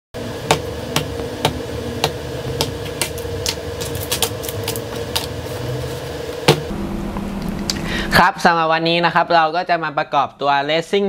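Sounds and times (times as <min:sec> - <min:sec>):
steady hum: 0:00.2 - 0:11.0.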